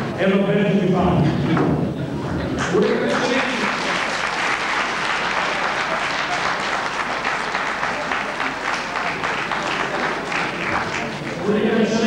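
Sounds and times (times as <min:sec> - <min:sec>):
audience applauding: 0:02.6 - 0:11.5.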